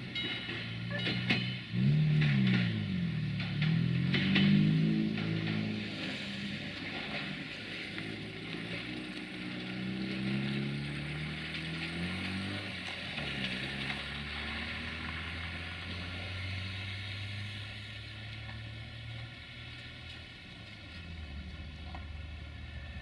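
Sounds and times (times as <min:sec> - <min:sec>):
diesel train engine drone: 0:00.0 - 0:23.0
wheels clattering on rails: 0:00.0 - 0:23.0.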